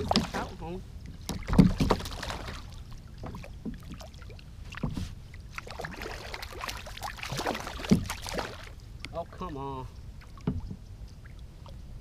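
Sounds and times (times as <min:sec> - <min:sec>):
fish splashing at water surface: 0:01.4 - 0:02.8, 0:05.6 - 0:08.8.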